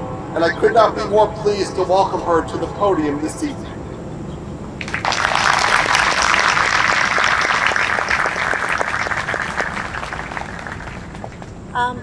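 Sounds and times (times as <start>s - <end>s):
audience applauding: 4.8s - 11.6s.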